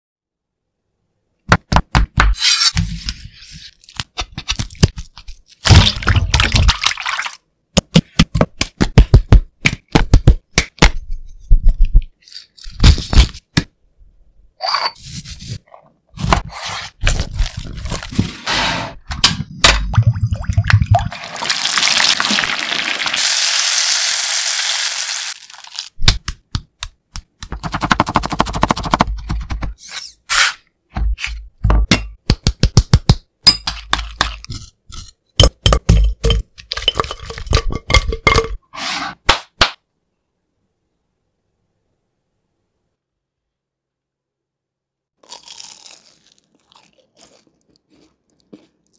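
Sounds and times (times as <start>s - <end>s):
clinks and scrapes in glass bowl: 14.6s - 15.6s, 34.4s - 39.0s
chicken sizzling in frying oil: 21.2s - 25.9s.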